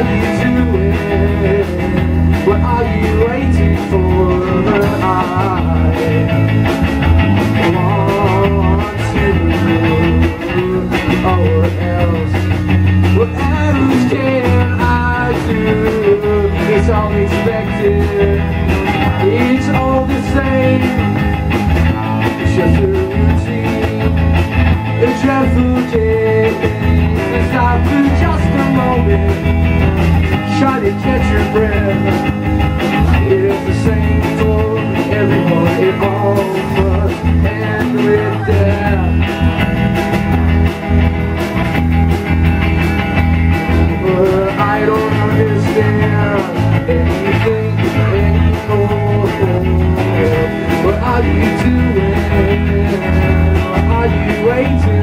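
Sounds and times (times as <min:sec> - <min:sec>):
young man singing: 0:00.0 - 0:06.7, 0:07.4 - 0:39.6, 0:43.7 - 0:55.0
bass guitar: 0:00.0 - 0:55.0
drum kit with cymbals: 0:00.0 - 0:55.0
electric guitar: 0:00.0 - 0:55.0.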